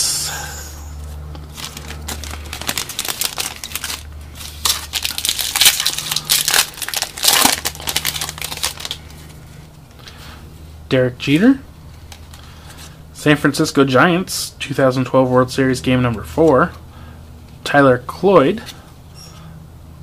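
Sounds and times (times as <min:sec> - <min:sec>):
foil wrapper crinkling and tearing: 0:01.4 - 0:09.4.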